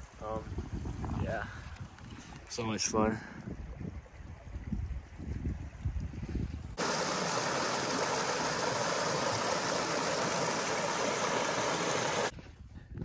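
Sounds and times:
flowing water rushing: 6.8s - 12.3s.

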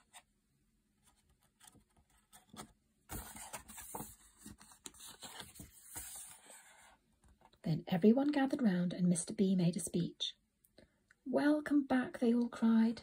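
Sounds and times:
paper page rustling: 1.1s - 7.4s.

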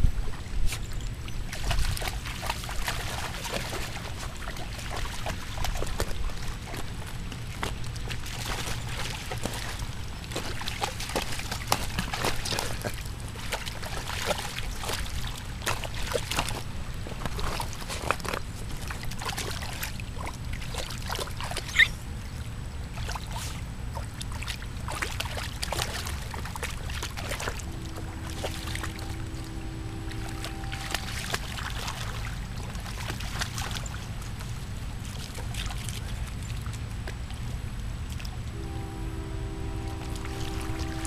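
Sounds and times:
dog splashing in water: 0.7s - 22.0s, 22.9s - 36.4s
low rumble: 27.2s - 33.0s.

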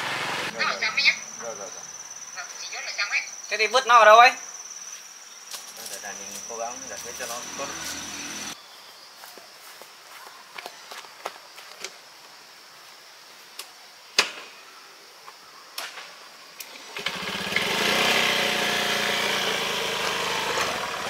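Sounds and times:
engine starting and running: 0.0s - 0.5s, 5.8s - 8.6s, 16.6s - 21.0s.

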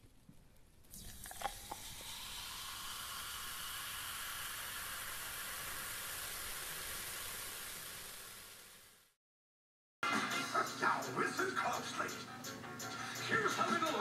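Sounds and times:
carbonated drink fizzing: 0.8s - 9.2s.

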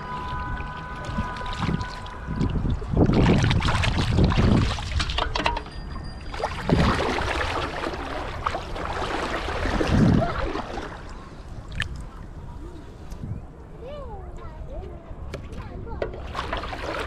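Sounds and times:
shallow water splashing: 0.0s - 5.4s, 6.2s - 12.3s, 16.1s - 17.0s.

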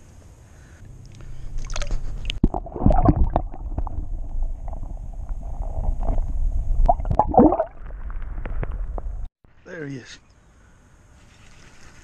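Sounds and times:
water splashing and gurgling: 1.6s - 9.3s.

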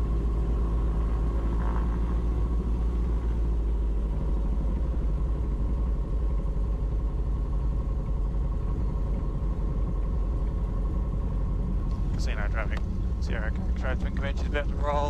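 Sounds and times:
aircraft engines droning: 0.0s - 15.0s.

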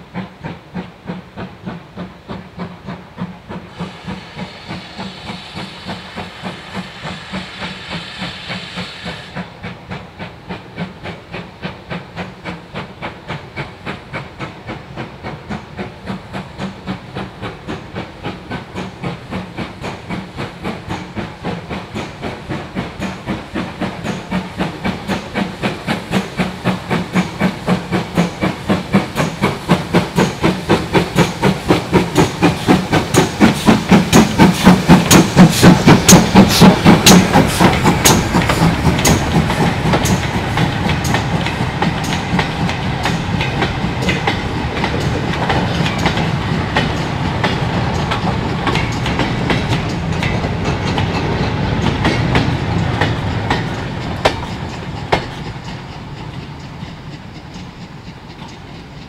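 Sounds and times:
steam locomotive exhaust beats: 0.0s - 59.0s
wagons clicking over rail joints: 15.3s - 59.0s.

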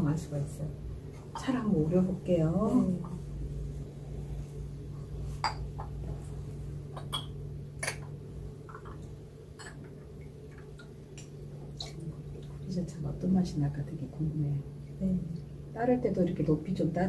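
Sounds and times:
steady low hum: 0.0s - 17.0s
glass teaware clinking: 7.0s - 7.4s.

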